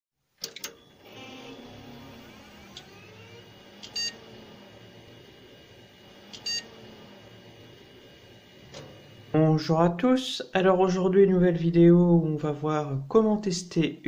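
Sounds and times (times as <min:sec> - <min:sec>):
short electronic beeps: 0:04.0 - 0:04.2, 0:06.4 - 0:06.7.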